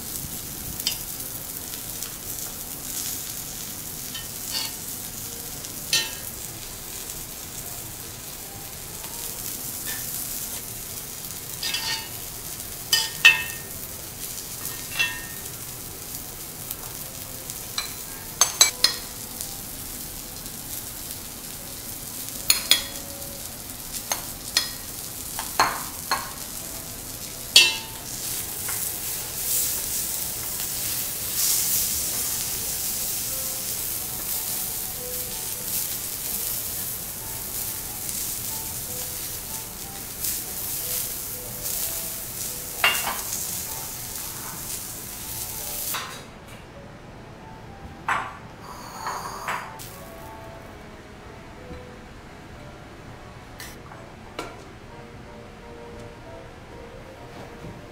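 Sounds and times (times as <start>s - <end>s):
griddle sizzling: 0.0s - 46.4s, 47.7s - 50.8s
metal spoon clinking on pot: 5.9s - 6.3s, 11.6s - 12.2s, 12.9s - 13.6s, 14.6s - 15.4s, 17.8s - 19.1s, 27.6s - 28.0s.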